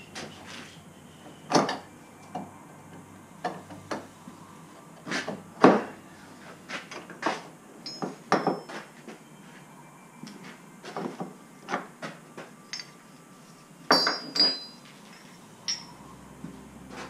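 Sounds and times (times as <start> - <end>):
short metallic ring: 13.9 - 16.0.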